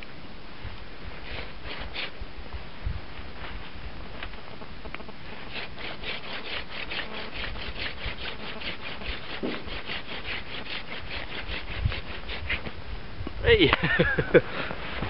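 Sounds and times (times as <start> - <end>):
wooden spindle grinding rasp: 1.2 - 2.2, 5.3 - 12.7.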